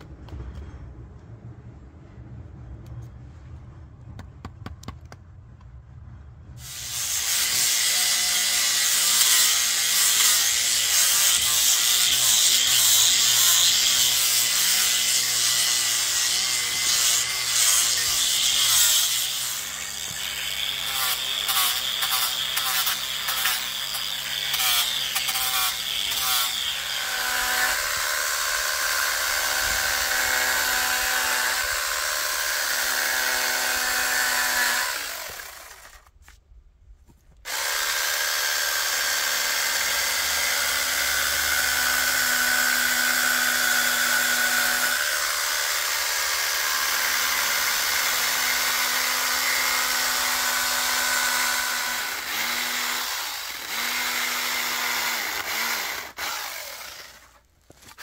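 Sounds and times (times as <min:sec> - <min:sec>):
angle grinder whining: 0:06.6 - 0:36.1, 0:37.5 - 0:58.0
small chainsaw carving wood: 0:06.6 - 0:36.4, 0:37.4 - 0:58.0.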